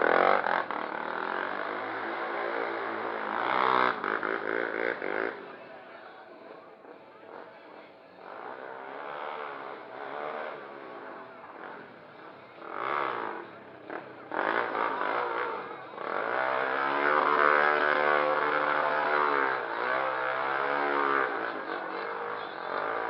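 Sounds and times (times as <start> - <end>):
quad engine revving: 0.0 - 5.6, 8.2 - 23.0.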